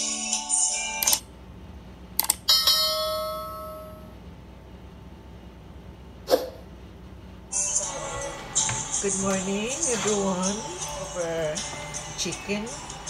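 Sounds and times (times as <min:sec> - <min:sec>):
intro music: 0:07.5 - 0:13.0.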